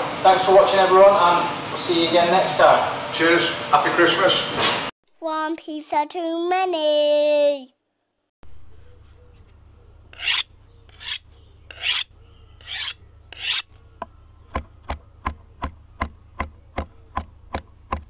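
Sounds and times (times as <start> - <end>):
rasping swishes: 10.2 - 13.7
beat of sharp clicks and thumps: 14.5 - 18.0.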